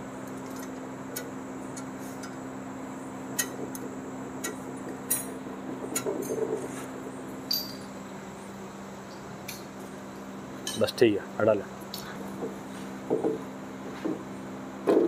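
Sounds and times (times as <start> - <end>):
steady low hum: 0.0 - 15.0
light metal clicks and clinks: 7.5 - 7.9.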